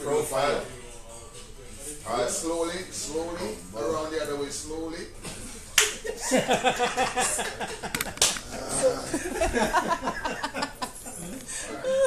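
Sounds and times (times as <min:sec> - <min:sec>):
people laughing: 0:05.8 - 0:12.0.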